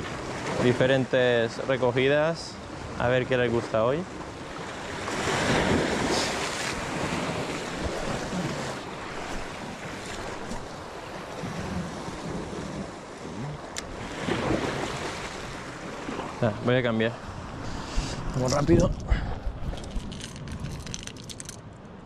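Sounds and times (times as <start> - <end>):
waves breaking on rocks: 0.0 - 21.7
wind on microphone: 5.1 - 16.5, 17.2 - 21.3.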